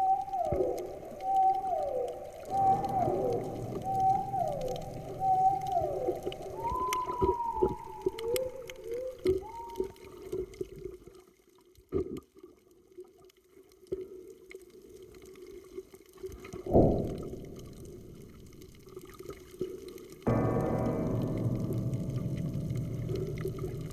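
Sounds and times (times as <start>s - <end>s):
whale calls: 0.0s - 10.2s
steady underwater hum: 0.0s - 10.4s, 16.6s - 23.9s
faint water sounds: 0.0s - 23.9s.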